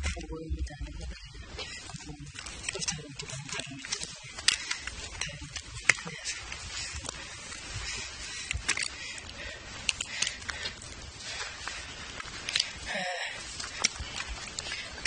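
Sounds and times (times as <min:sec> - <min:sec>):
footsteps on rocky ground: 0:01.5 - 0:15.0
camera handling rustle: 0:08.4 - 0:09.0.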